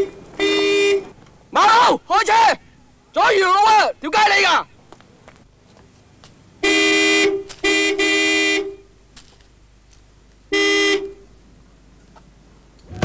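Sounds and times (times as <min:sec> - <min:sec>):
car horn honking: 0:00.0 - 0:01.2, 0:06.6 - 0:08.9, 0:10.5 - 0:11.2.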